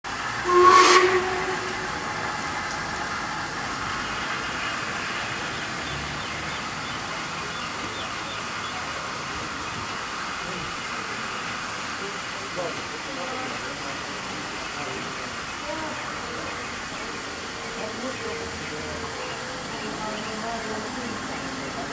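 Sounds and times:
steam hissing: 0.1 - 21.9
steam locomotive whistle: 0.3 - 3.3.

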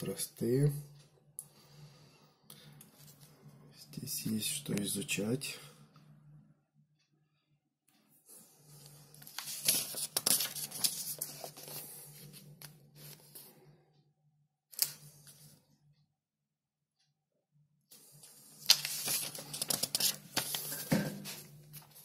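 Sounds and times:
paper pages rustling: 9.0 - 13.5, 18.2 - 22.0.

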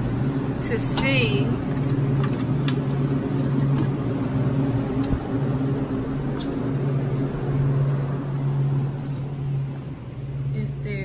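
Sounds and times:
refrigeration fans humming: 0.0 - 11.0.

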